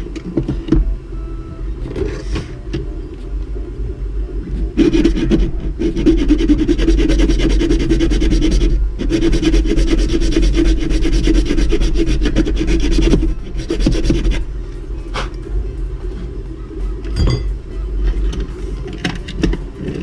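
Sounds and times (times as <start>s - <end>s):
hand file rasping on plastic: 4.8s - 14.4s.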